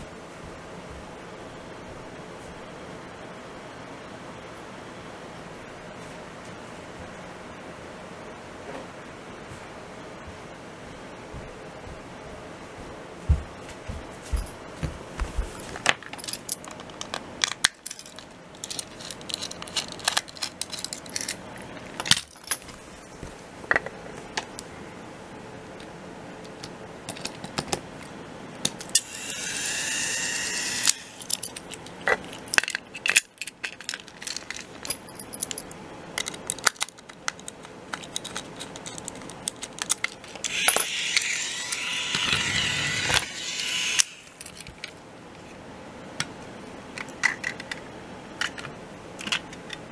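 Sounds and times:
plastic toy train clattering: 0:16.0 - 0:21.4, 0:36.2 - 0:43.8
small motor whirring: 0:29.0 - 0:31.4, 0:40.4 - 0:44.4.

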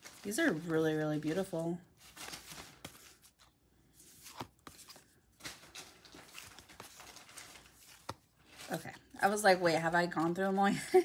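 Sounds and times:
cards sliding rustle: 0:01.4 - 0:08.8.

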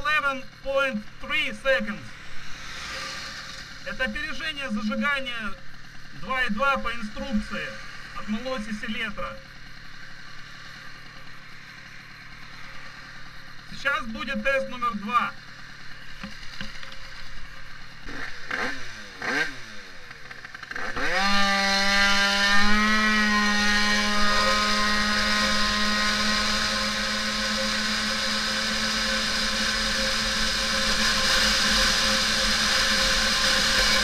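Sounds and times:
scooter engine revving: 0:00.0 - 0:34.0.

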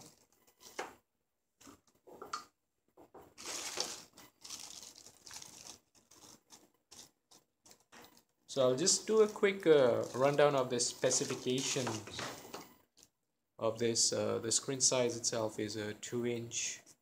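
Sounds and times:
plastic bags crinkling: 0:03.3 - 0:12.4.

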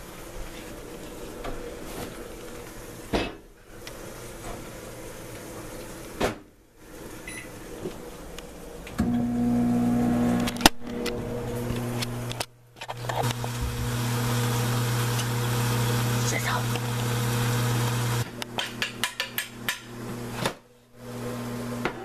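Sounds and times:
microwave oven humming: 0:08.8 - 0:20.4, 0:21.0 - 0:22.0.

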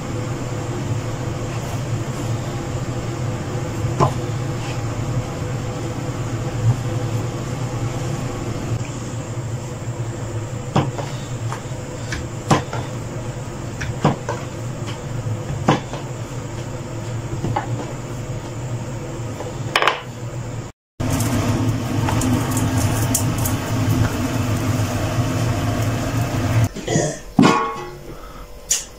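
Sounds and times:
steady low hum: 0:00.0 - 0:28.9
rolling pin rolling dough: 0:01.2 - 0:08.8, 0:09.6 - 0:20.0.

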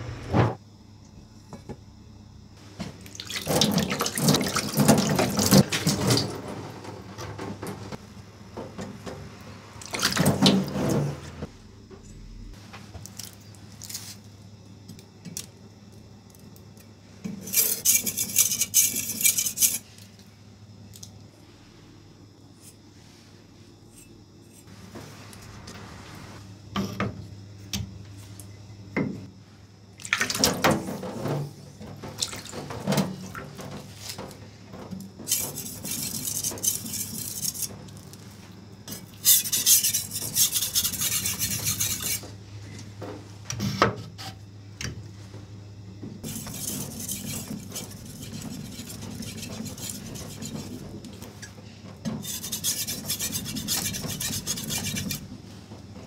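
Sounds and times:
low steady hum: 0:06.9 - 0:17.2
knife scraping on whetstone: 0:17.4 - 0:19.9, 0:35.3 - 0:37.7, 0:38.9 - 0:42.3, 0:46.2 - 0:50.8, 0:52.2 - 0:55.2.

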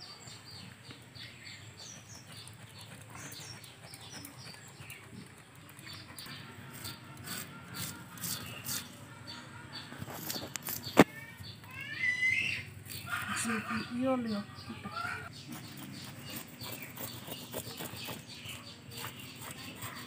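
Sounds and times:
small birds chirping: 0:00.0 - 0:20.0
knife scraping fish scales: 0:06.6 - 0:09.0, 0:15.4 - 0:20.0.

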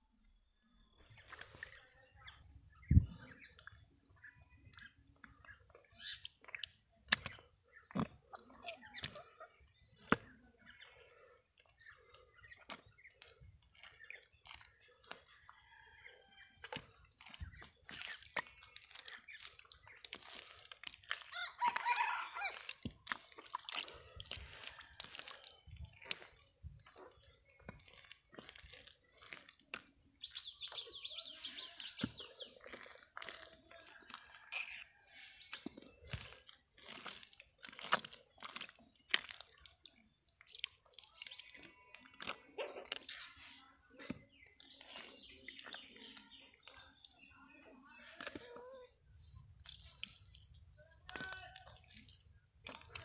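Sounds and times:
hands squelching through wet mud: 0:00.1 - 0:53.0
birds calling: 0:00.8 - 0:33.3.

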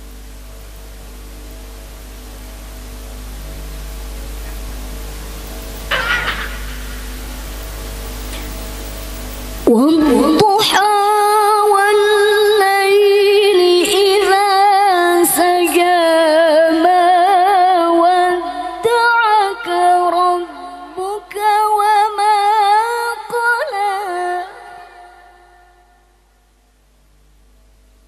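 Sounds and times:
woman reciting melodically: 0:09.6 - 0:25.8.

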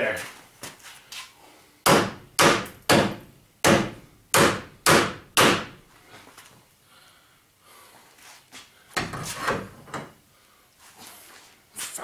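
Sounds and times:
hammer striking metal bolt: 0:01.9 - 0:05.8.

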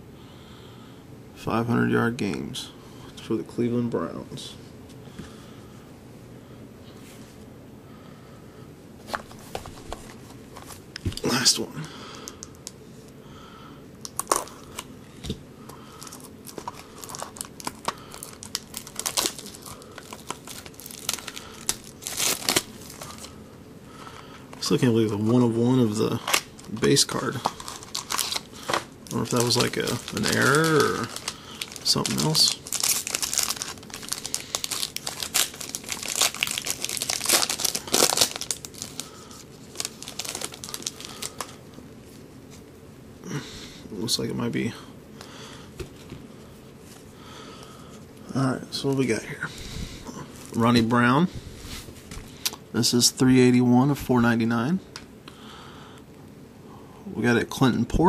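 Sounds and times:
plastic wrapper crinkling and tearing: 0:14.0 - 0:14.9, 0:15.9 - 0:23.4, 0:24.5 - 0:41.6.

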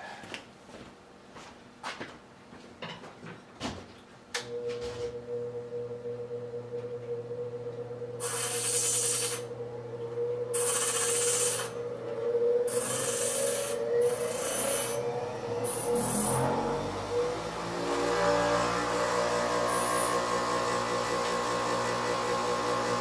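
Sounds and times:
steady motor hum: 0:04.4 - 0:23.0
abrasive rubbing on metal: 0:10.5 - 0:11.8, 0:12.7 - 0:15.0.

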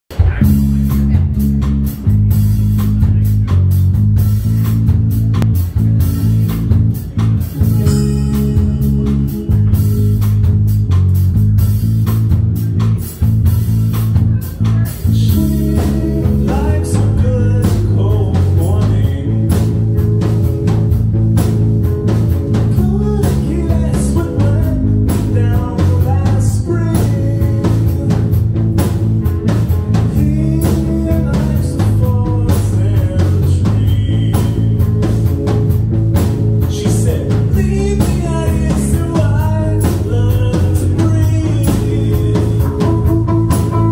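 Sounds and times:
bass guitar: 0:00.0 - 0:43.9
drum kit: 0:00.1 - 0:43.9
electric guitars: 0:00.1 - 0:43.9
person singing: 0:14.2 - 0:20.7, 0:22.5 - 0:28.6, 0:30.0 - 0:35.5, 0:36.6 - 0:43.9.

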